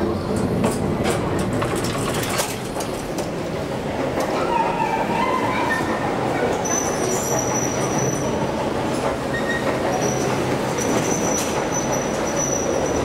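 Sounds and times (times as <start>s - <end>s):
metro train running: 0.0s - 13.0s
high wheel squeal: 4.4s - 8.4s, 9.3s - 13.0s.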